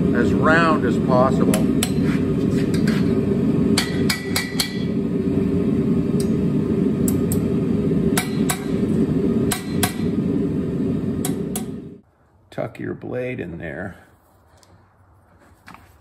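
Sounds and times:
hammer tapping on steel: 3.8 - 4.9.

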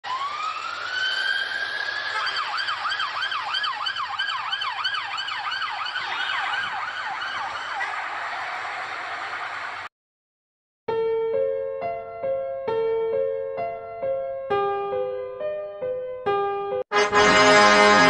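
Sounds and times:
police siren wailing and yelping: 0.0 - 9.4
traffic noise: 0.0 - 9.9.

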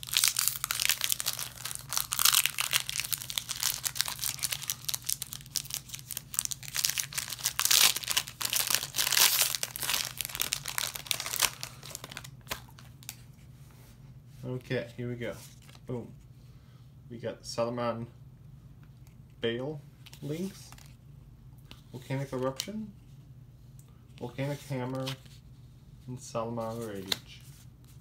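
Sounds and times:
foil wrapper crinkling and tearing: 0.0 - 13.2.

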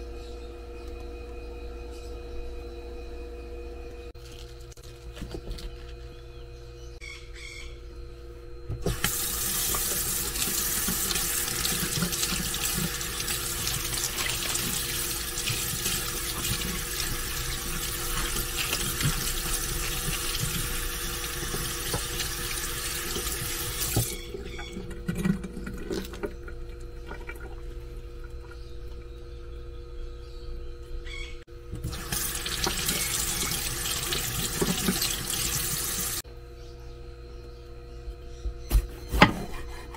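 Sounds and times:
faucet water splashing in sink: 8.8 - 27.6, 31.8 - 36.2.

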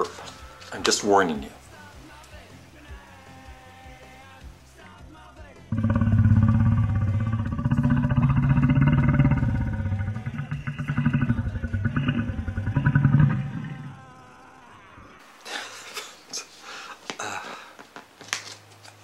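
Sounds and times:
man burping: 5.7 - 14.2.

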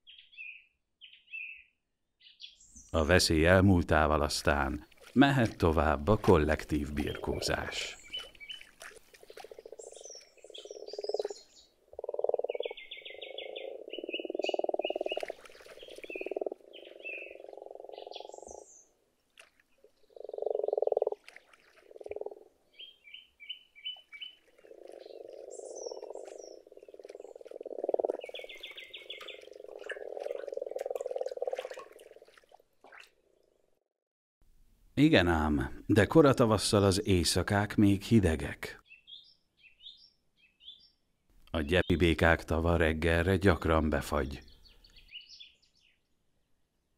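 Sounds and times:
frogs croaking: 6.5 - 8.6, 9.2 - 18.9, 19.8 - 32.4.

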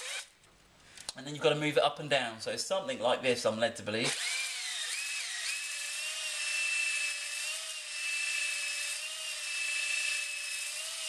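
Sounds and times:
cordless drill motor whine: 0.0 - 0.3, 4.1 - 11.0.

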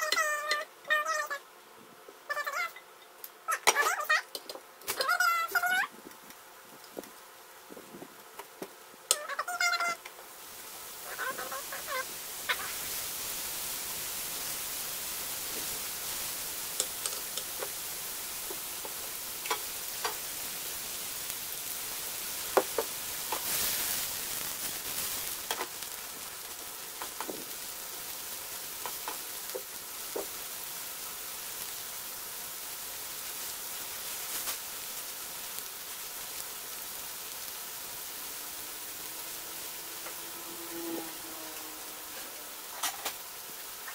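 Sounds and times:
mushrooms sizzling in oil: 0.0 - 43.9
pan and utensil clicks: 16.8 - 17.7.

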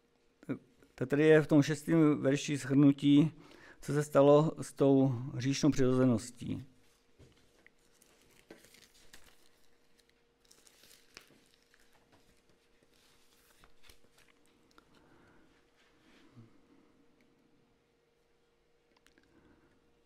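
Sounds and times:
faint steady hum: 0.0 - 20.0
soft rustles: 6.8 - 16.8.

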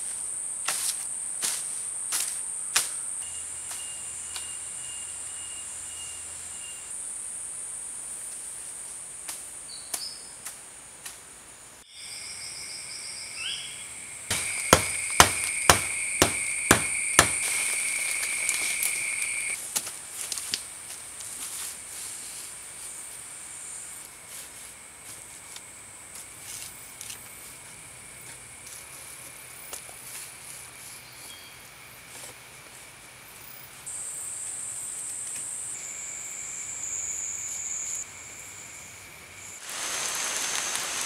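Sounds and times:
insects buzzing: 11.5 - 19.6, 21.5 - 41.0
sharp knocks: 14.3 - 17.5.

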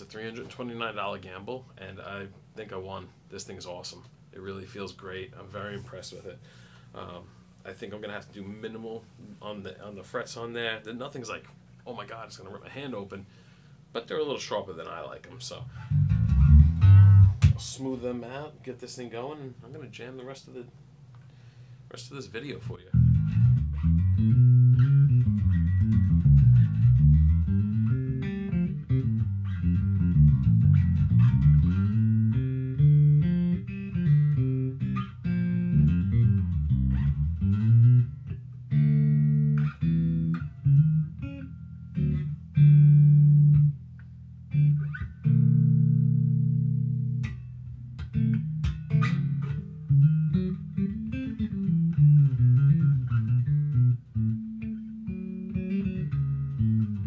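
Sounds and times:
electric bass playing: 15.5 - 17.8, 22.7 - 57.0.

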